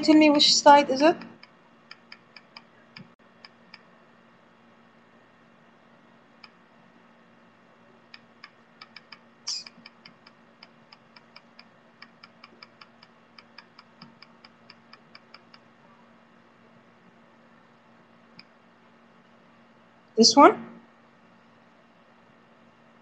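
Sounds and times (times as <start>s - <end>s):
computer mouse clicks: 1.2s - 3.9s, 6.4s - 6.6s, 8.1s - 15.7s.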